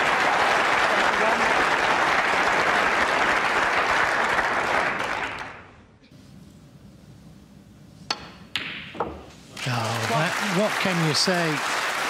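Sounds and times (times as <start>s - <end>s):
audience applauding: 0.0s - 5.7s, 9.6s - 12.0s
snooker balls clicking: 8.1s - 9.4s.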